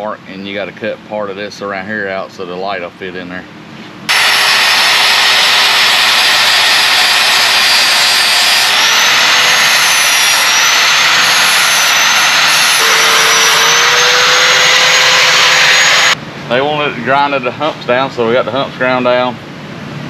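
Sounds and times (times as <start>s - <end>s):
angle grinder grinding metal: 4.1s - 16.2s.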